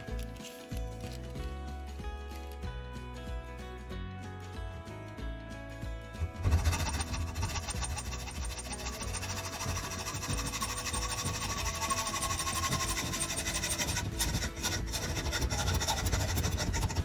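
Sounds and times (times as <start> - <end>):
background music: 0.0 - 17.0
hacksaw cutting metal: 6.4 - 17.0.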